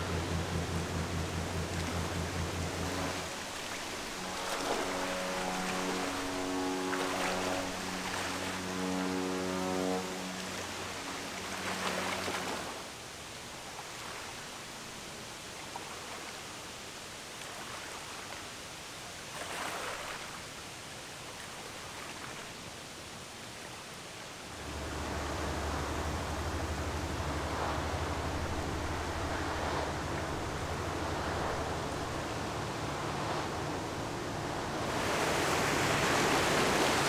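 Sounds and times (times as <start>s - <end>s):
bow wave rushing: 0.0s - 13.0s, 24.4s - 37.0s
ship's horn: 0.0s - 13.0s, 24.4s - 37.0s
ferry engine hum: 0.0s - 14.6s, 24.4s - 37.0s
water noise: 0.0s - 37.0s
wind: 0.0s - 37.0s.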